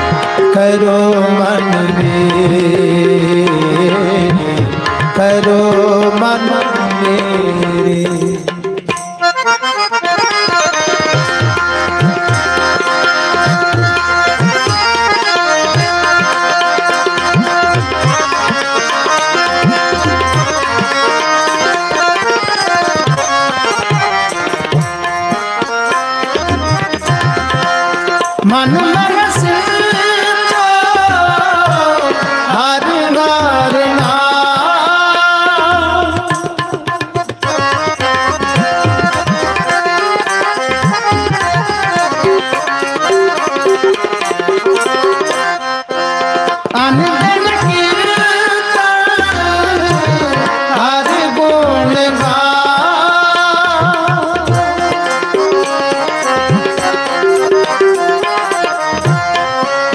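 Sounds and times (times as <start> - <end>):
harmonium: 0.0 - 59.9
tabla playing a steady rhythm: 0.0 - 59.9
person singing long gliding phrases: 0.3 - 8.6, 28.4 - 37.1, 46.7 - 56.0.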